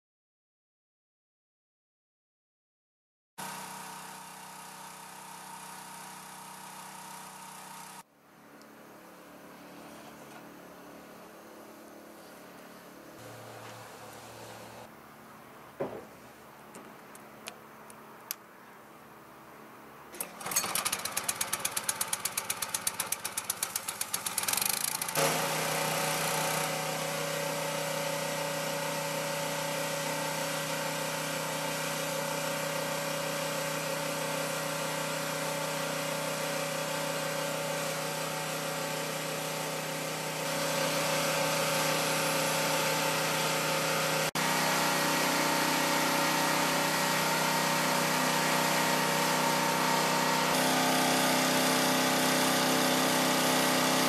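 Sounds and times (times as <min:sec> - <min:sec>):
pressure washer engine running: 0:03.4 - 0:08.1, 0:13.1 - 0:14.9, 0:20.1 - 0:54.0
water jet hissing: 0:13.2 - 0:14.9.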